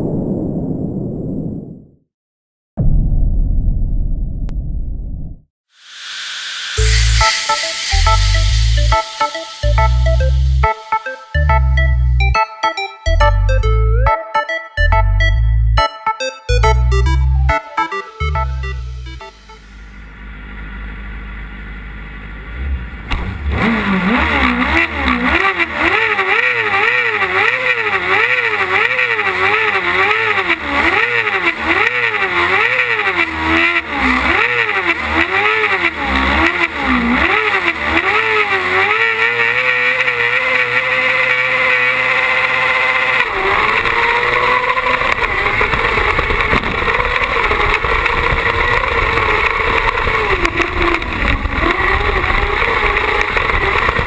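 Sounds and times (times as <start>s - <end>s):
buggy engine revving: 19.5s - 54.0s.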